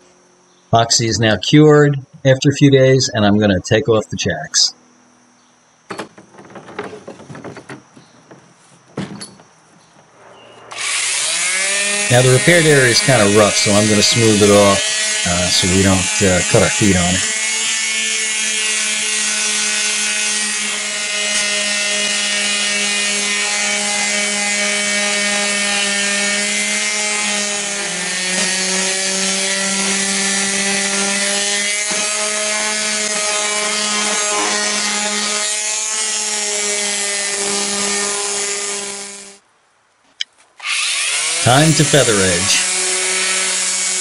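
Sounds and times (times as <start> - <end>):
electric sander running: 10.7 - 39.4, 40.6 - 44.0.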